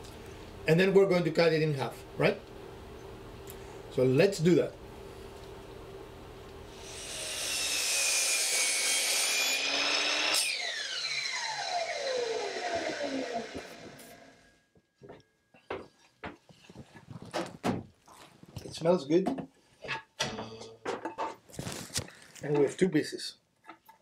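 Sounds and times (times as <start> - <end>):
miter saw cutting wood: 6.7 - 14.5
saw blade whine spinning down: 9.3 - 14.6
knocks and clatters of wood pieces: 15.7 - 18.6.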